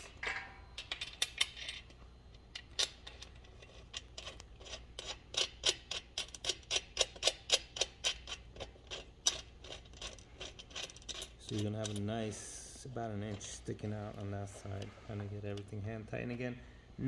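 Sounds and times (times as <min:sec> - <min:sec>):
nut spinning on bolt ticking: 0:03.9 - 0:12.1.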